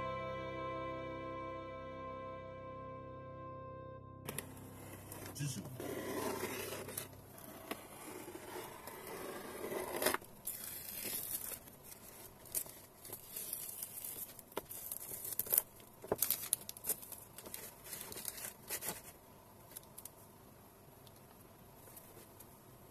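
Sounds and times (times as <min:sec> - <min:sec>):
masking tape peeling off paper: 0:09.9 - 0:19.1.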